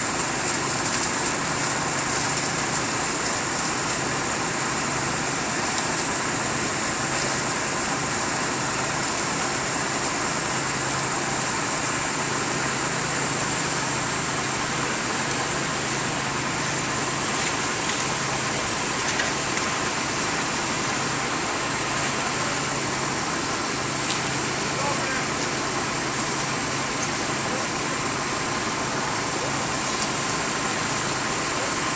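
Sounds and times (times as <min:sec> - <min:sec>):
engine idling: 0:00.0 - 0:31.9.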